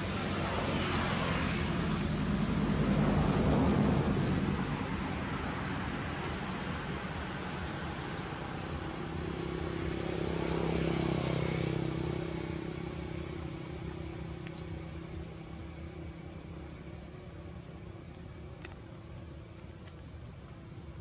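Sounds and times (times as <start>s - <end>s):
passing vehicle engine: 0.0s - 16.6s.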